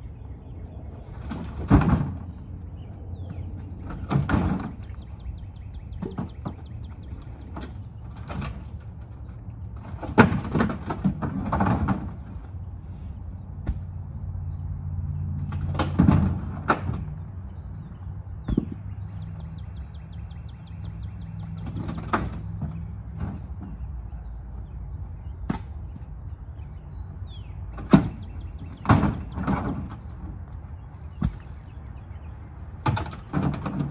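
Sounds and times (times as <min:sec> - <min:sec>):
firewood logs knocking and scraping: 0:01.0 - 0:13.0, 0:15.4 - 0:19.5, 0:21.4 - 0:24.3, 0:27.7 - 0:31.9, 0:32.6 - 0:33.9.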